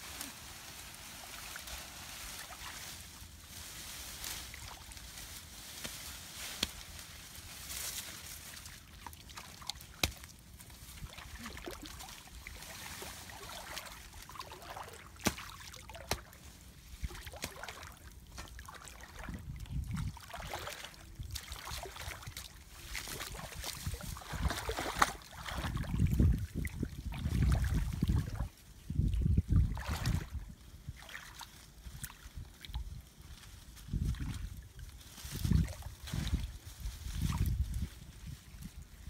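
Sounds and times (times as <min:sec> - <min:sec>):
rustling: 0:00.0 - 0:16.5
wind on microphone: 0:19.1 - 0:20.5, 0:23.1 - 0:31.0, 0:33.8 - 0:39.0.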